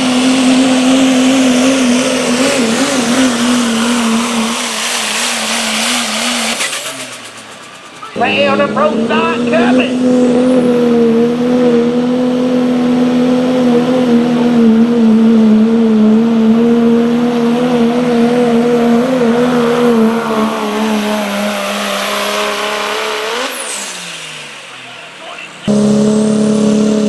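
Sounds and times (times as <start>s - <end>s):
diesel engine at high revs: 0.0s - 27.0s.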